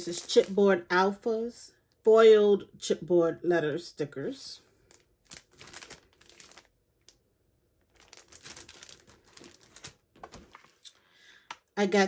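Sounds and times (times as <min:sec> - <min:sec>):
plastic packaging crinkling: 0:00.0 - 0:00.6, 0:04.8 - 0:07.2, 0:07.8 - 0:11.0.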